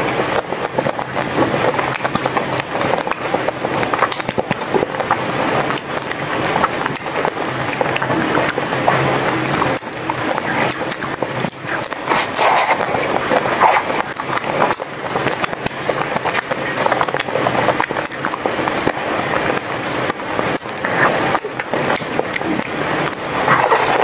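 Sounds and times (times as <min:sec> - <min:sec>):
biting and chewing ice cream: 0:00.0 - 0:24.0
frozen shell crunching: 0:09.8 - 0:18.5, 0:20.6 - 0:24.0.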